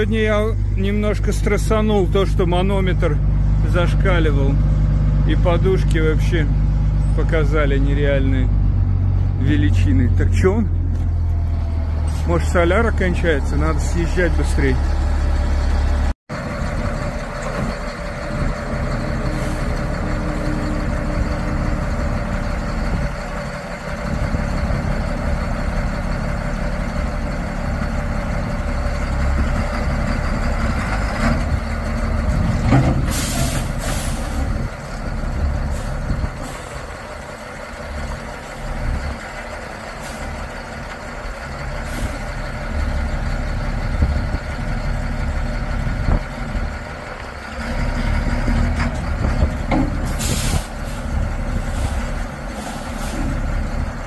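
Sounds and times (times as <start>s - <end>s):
truck diesel engine running: 0.0s - 54.0s
air brakes hissing: 33.1s - 34.6s, 50.0s - 53.5s.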